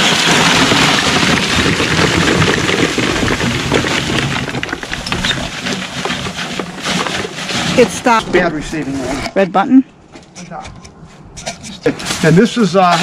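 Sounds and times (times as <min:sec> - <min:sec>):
charcoal pouring into plastic tub: 0:00.0 - 0:08.2.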